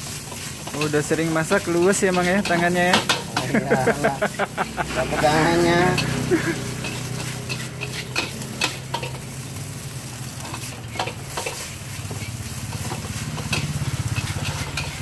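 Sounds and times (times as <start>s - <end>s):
metal spatula scraping a pan: 0.0s - 9.5s, 10.2s - 15.0s
rice sizzling in a wok: 0.0s - 15.0s.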